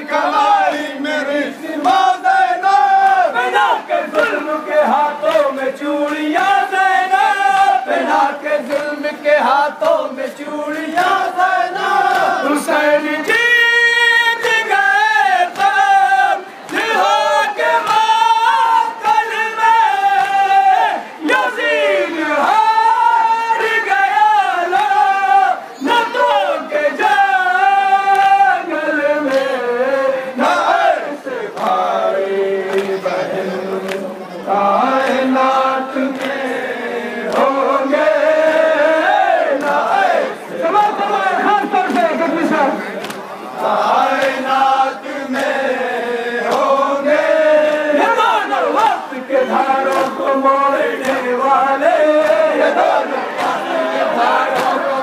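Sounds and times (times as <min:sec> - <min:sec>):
men chanting a lament: 0:00.0 - 0:55.0
sharp rhythmic slaps: 0:01.1 - 0:21.7, 0:22.4 - 0:55.0
lead voice on microphone: 0:40.0 - 0:43.8.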